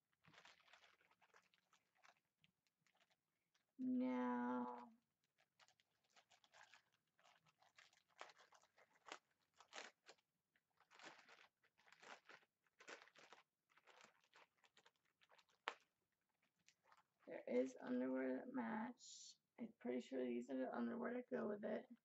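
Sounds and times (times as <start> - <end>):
plastic bag crinkling: 0.0 - 17.2.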